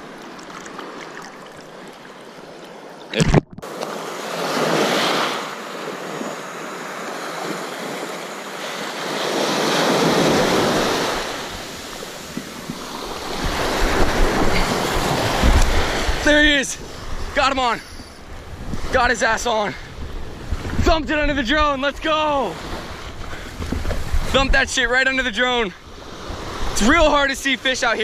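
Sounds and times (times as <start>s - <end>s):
surf waves breaking on beach: 0.0s - 28.0s
wind on microphone: 10.2s - 19.2s, 19.8s - 21.8s, 22.7s - 24.7s.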